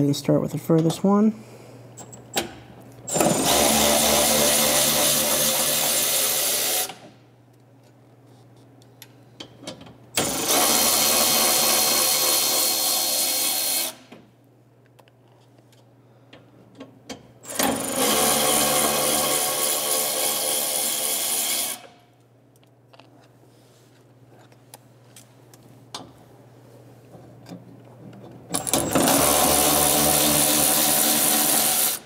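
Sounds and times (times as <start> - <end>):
electric ratchet spinning: 3.1 - 7.0, 10.2 - 14.1, 17.4 - 21.9, 28.6 - 32.0.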